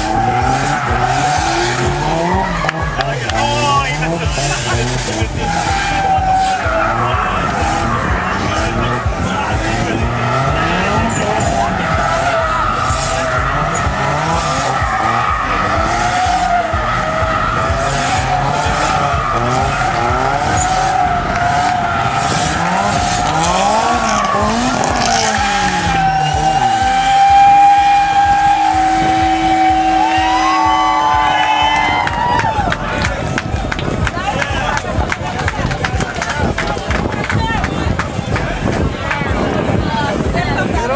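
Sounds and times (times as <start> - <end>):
tyres squealing: 0.0 - 32.1
car engines revving: 0.0 - 40.9.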